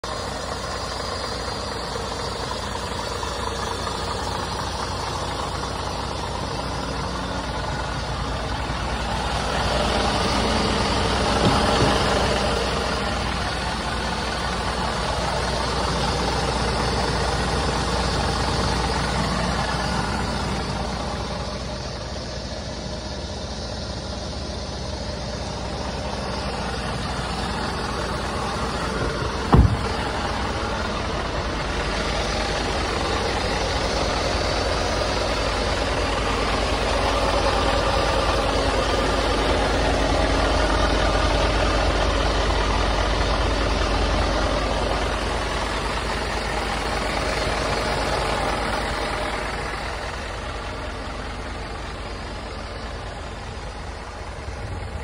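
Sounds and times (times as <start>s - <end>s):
diesel truck engine idling: 0.0s - 55.0s
sharp knock: 29.2s - 30.1s.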